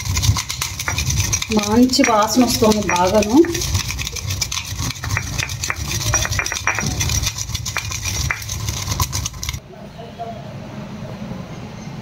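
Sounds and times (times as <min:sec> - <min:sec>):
low grinding rumble: 0:00.0 - 0:09.6
pestle knocking in stone mortar: 0:00.0 - 0:09.6.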